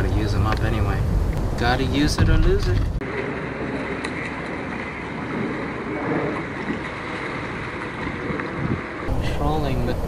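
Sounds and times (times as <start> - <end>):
open water rushing: 3.0 - 10.0.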